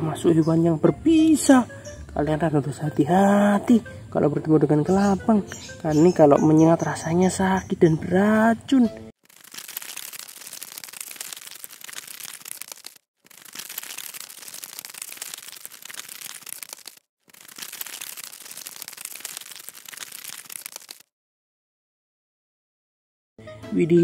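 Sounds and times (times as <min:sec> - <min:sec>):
dry crackling rustle: 0:09.2 - 0:21.1.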